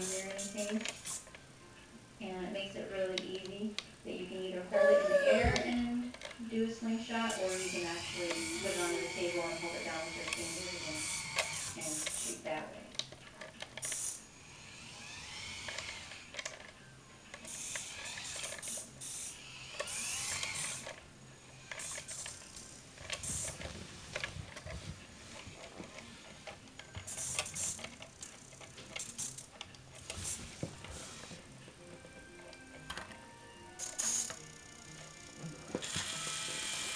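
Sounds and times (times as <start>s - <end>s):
short high-pitched servo buzzes: 0.0s - 1.2s, 7.3s - 12.4s, 13.8s - 16.3s, 17.5s - 21.0s, 21.6s - 23.6s, 27.0s - 31.3s, 33.8s - 36.9s
toy truck motor whining: 0.0s - 1.3s, 7.2s - 12.5s, 13.6s - 31.4s, 32.0s - 36.9s.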